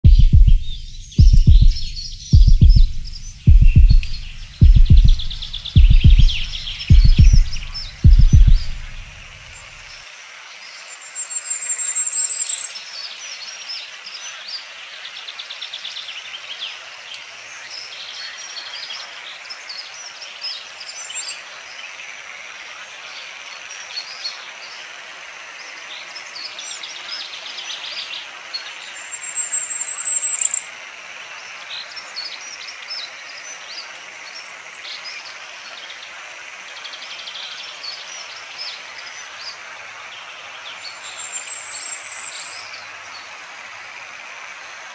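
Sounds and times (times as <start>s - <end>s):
chorus of small animal chirps: 0.6s - 9.7s.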